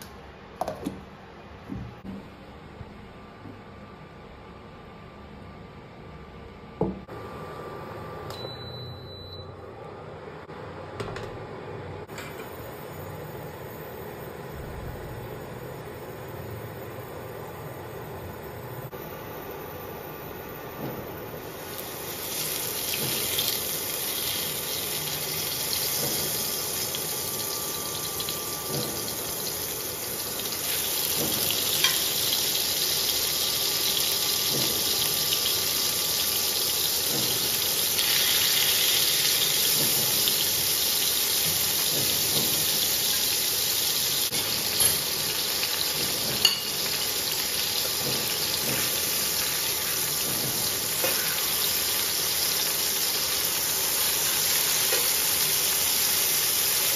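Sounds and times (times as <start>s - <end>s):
food sizzling in frying pan: 21.5s - 56.9s.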